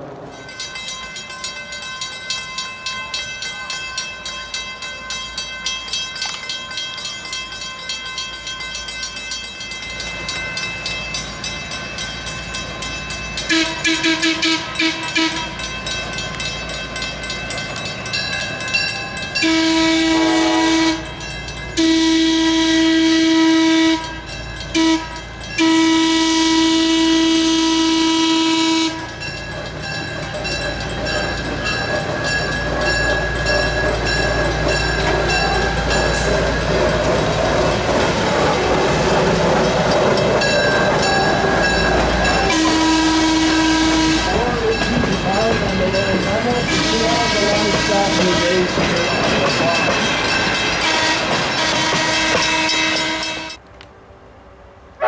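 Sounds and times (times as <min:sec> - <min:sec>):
crossing warning bell ringing: 0:00.0 - 0:53.7
locomotive horn: 0:13.5 - 0:15.5, 0:19.4 - 0:21.2, 0:21.8 - 0:29.2, 0:42.3 - 0:44.6, 0:46.7 - 0:48.7, 0:50.8 - 0:53.6.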